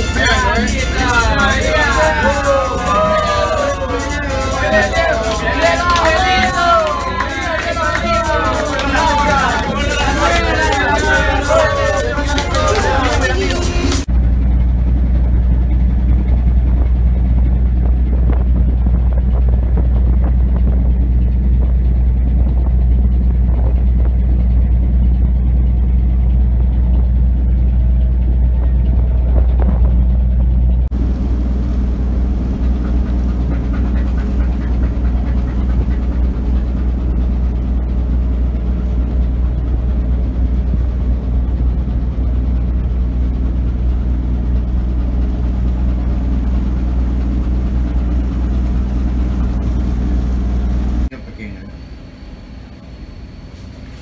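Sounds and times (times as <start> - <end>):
boat engine droning: 0.0 - 54.0
wind: 0.0 - 54.0
water noise: 16.3 - 51.1.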